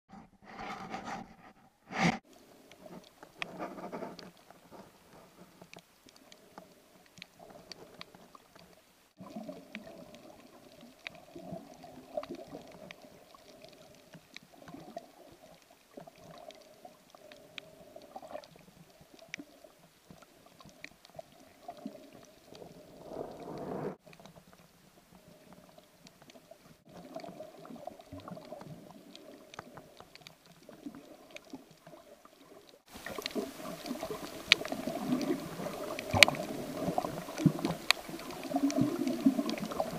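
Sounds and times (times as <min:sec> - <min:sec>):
faint clicks and crackles: 0:00.1 - 0:39.9
underwater water sloshing: 0:00.5 - 0:39.9.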